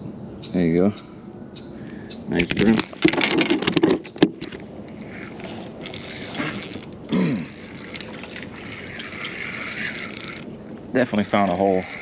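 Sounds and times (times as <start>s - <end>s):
geared mechanism whirring and clicking: 5.1s - 10.5s
short falling squeak: 5.1s - 10.5s.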